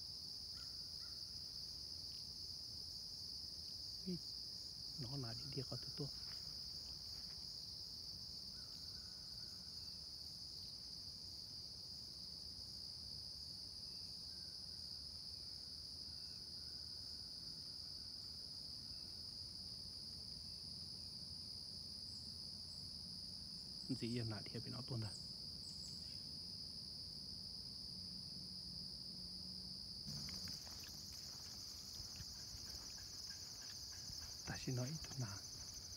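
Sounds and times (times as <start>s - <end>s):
crickets and insects chirring: 0.0s - 35.9s.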